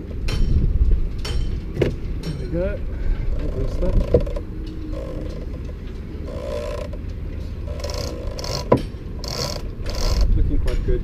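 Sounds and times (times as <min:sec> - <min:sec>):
metal parts scraping and rattling: 0:03.3 - 0:10.3.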